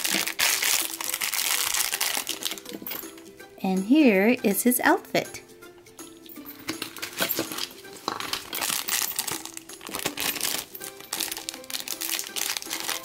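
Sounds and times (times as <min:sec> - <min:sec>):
plastic packaging crinkling: 0:00.0 - 0:02.9, 0:06.8 - 0:13.0
background music: 0:00.0 - 0:13.0.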